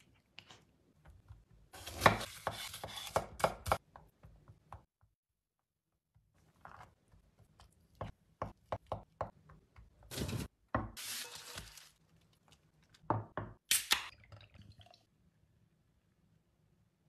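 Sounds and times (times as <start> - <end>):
aluminium foil crinkling: 11.0 - 13.0.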